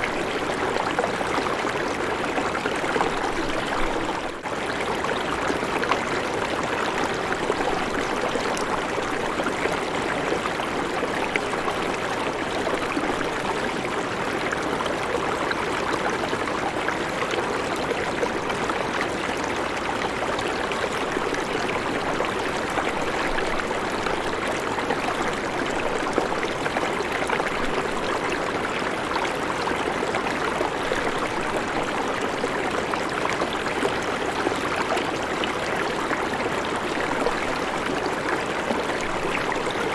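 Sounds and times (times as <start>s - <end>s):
river flowing over stones: 0.0s - 39.9s.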